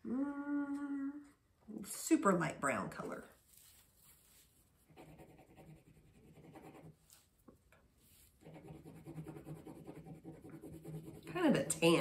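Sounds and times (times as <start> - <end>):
pencil scratching on paper: 4.8 - 7.3, 8.0 - 12.0.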